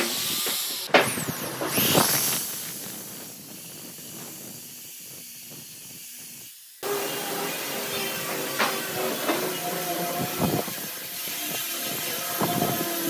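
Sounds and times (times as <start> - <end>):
electric drill boring into wood: 0.0 - 13.0.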